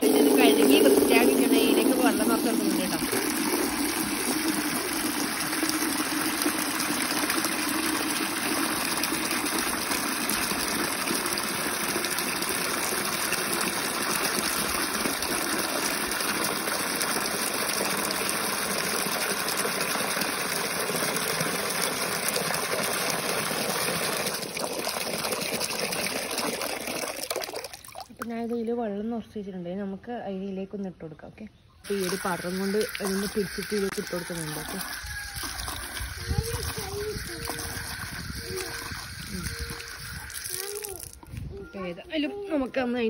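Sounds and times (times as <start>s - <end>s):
tap water pouring into bucket: 0.0s - 28.4s, 31.8s - 41.4s.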